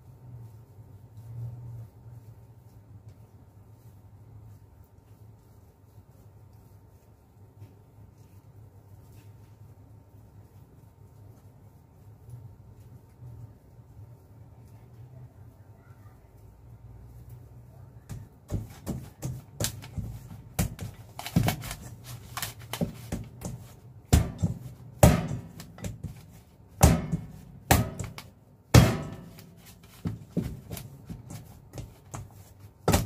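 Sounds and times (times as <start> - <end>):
dough slapped into metal bowl: 22.7 - 26.2, 26.8 - 30.8.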